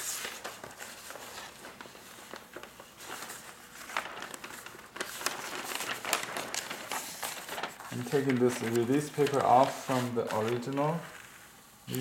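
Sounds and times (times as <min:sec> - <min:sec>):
paper rustling and crackling: 0:00.0 - 0:11.6.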